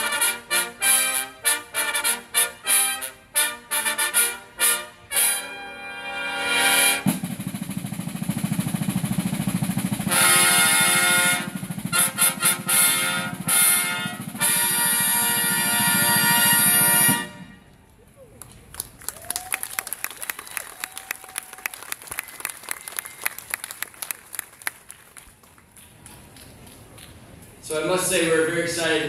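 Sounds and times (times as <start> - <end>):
trumpet fanfare: 0.0 - 7.4, 9.9 - 17.7
snare drum roll: 6.5 - 17.5.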